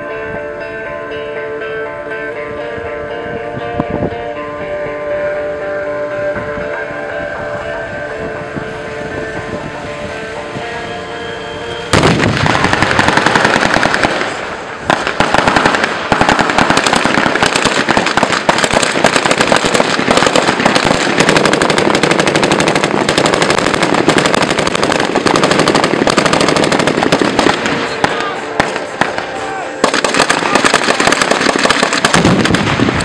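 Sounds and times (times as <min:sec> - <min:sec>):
vehicle engines running: 0:05.3 - 0:17.4
automatic gunfire: 0:12.0 - 0:33.0.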